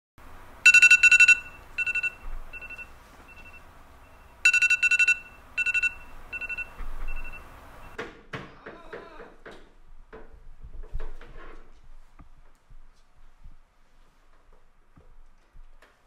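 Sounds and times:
electronic alarm beeping: 0.6 - 8.0.

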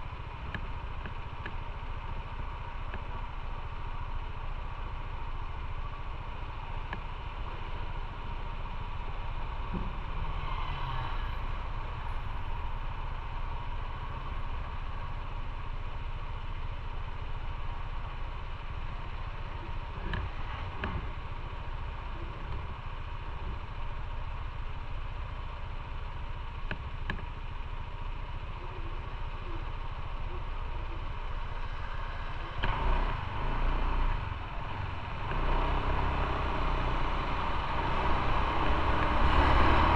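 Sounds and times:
motorcycle engine idling: 0.0 - 10.3, 11.3 - 39.0
motorcycle pulling away: 31.5 - 39.9.

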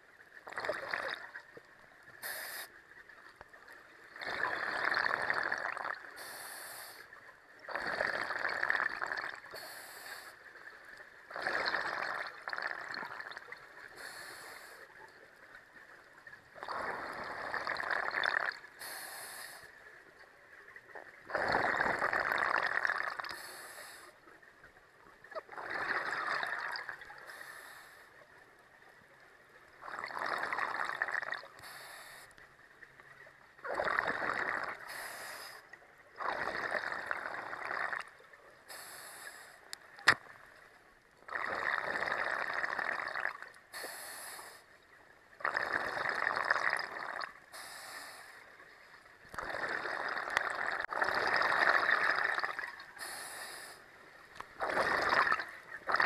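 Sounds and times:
exhaust bubbles gurgling: 0.0 - 1.7, 4.1 - 6.1, 7.7 - 9.5, 11.3 - 13.9, 16.5 - 18.7, 21.2 - 23.3, 25.3 - 27.1, 29.8 - 31.6, 33.6 - 34.9, 36.1 - 38.2, 41.3 - 43.5, 45.4 - 47.4, 49.3 - 52.9, 54.6 - 56.0
regulator inhale hiss: 2.2 - 2.8, 6.2 - 7.1, 9.5 - 10.4, 13.9 - 14.9, 18.8 - 19.8, 23.3 - 24.2, 27.2 - 28.2, 31.6 - 32.4, 34.9 - 35.7, 38.7 - 39.7, 43.7 - 44.7, 47.5 - 48.5, 53.0 - 53.9.

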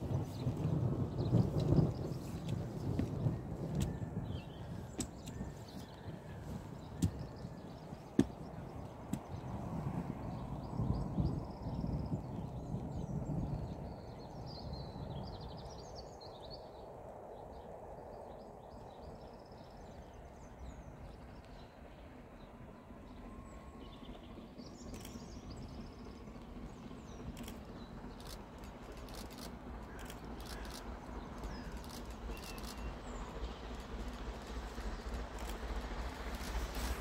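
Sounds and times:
train clicks and beats: 0.0 - 4.2, 4.8 - 9.7, 24.0 - 37.0
steam train rumble: 0.0 - 37.0
birds chirping: 0.2 - 16.9, 17.5 - 37.0.

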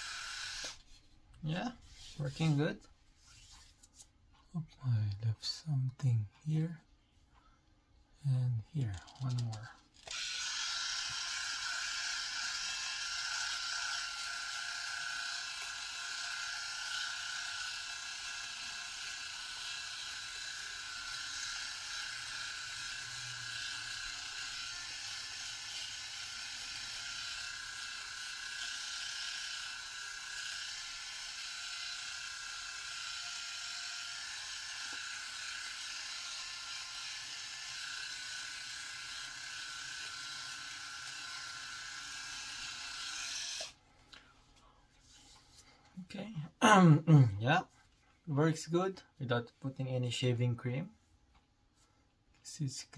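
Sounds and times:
electric shaver whirring: 0.0 - 0.8, 10.0 - 43.8.

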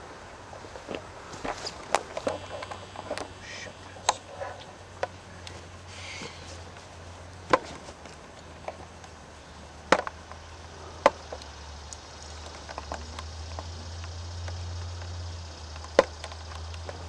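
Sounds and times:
wooden pins clicking and knocking: 9.9 - 17.0.

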